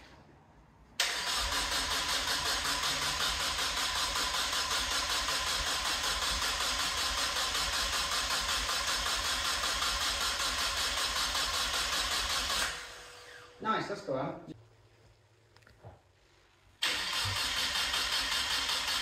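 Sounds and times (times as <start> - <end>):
starter motor cranking engine: 1.0 - 13.4, 16.8 - 19.0.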